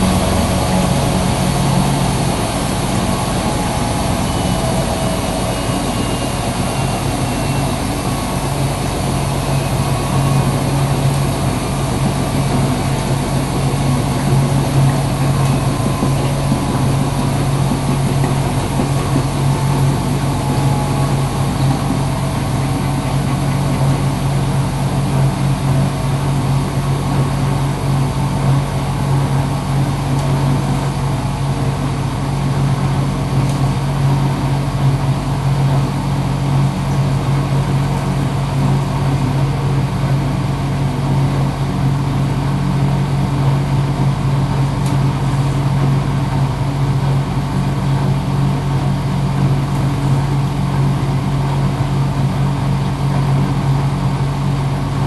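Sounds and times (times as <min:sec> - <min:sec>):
washing machine hiss: 0:00.0 - 0:31.7
washing machine humming: 0:00.0 - 0:55.0.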